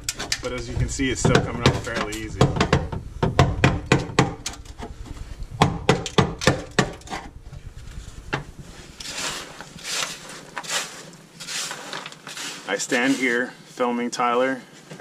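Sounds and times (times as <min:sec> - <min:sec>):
loose chips scraping and rustling: 0:09.0 - 0:13.6.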